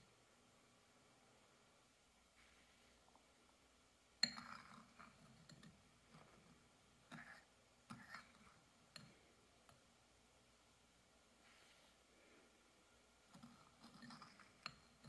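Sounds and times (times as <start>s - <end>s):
utensils tapping on ceramic and glass: 4.2s - 5.8s.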